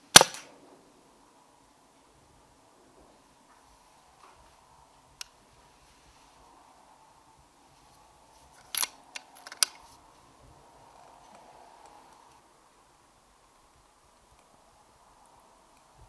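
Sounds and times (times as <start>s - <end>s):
air rifle action clicks: 0.1s - 0.5s, 8.6s - 9.8s.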